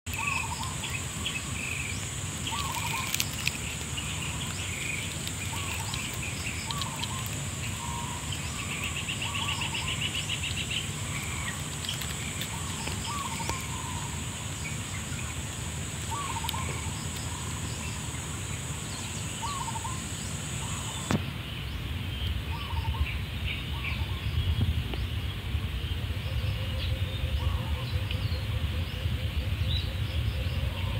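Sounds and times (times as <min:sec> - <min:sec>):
bird chirps and trill: 0:00.1 - 0:21.1.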